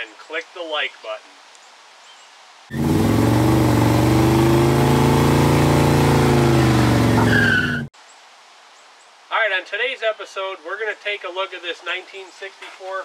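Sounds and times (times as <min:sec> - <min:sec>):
car engine revving: 0:02.7 - 0:07.9
short high squeal: 0:07.1 - 0:07.9.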